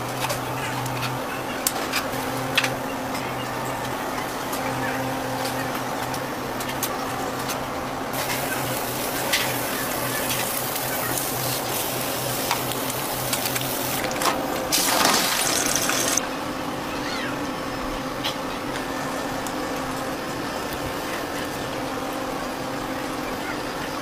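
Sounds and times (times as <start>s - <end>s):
food sizzling in a pan: 8.2s - 14.1s, 14.8s - 16.2s.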